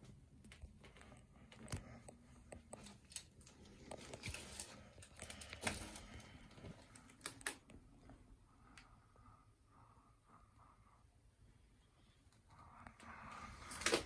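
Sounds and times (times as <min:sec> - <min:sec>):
paper rustling and crinkling: 0:02.6 - 0:07.6.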